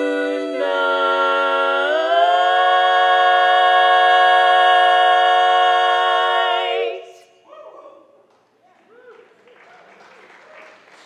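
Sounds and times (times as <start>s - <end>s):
female vocal quartet singing chords: 0.0s - 7.5s.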